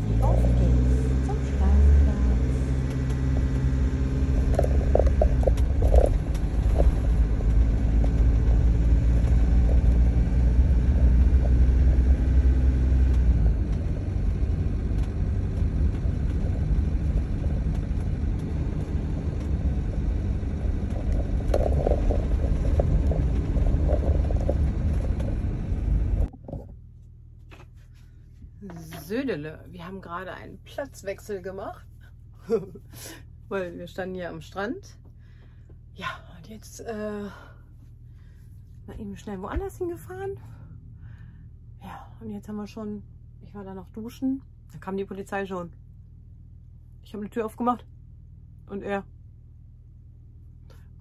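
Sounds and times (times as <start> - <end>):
engine and road rumble: 0.0 - 51.0.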